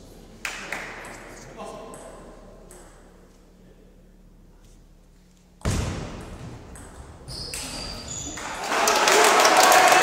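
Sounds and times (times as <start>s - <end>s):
loud thump: 5.6s - 6.8s.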